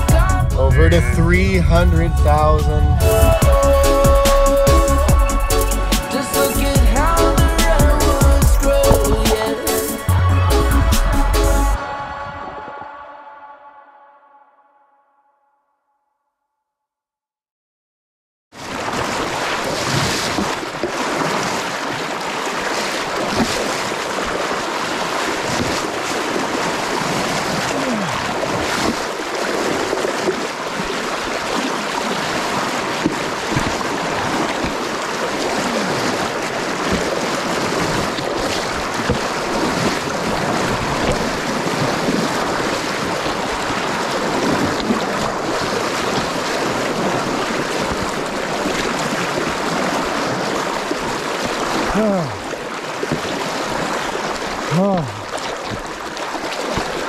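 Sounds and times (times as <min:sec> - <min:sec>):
river current rushing: 0:00.0 - 0:10.7, 0:18.6 - 0:57.0
splashing of wading legs: 0:06.0 - 0:10.1, 0:18.6 - 0:57.0.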